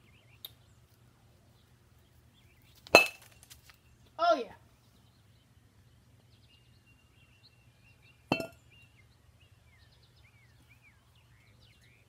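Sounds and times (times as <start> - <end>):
bat clinking on concrete: 2.8 - 3.6, 8.3 - 8.6.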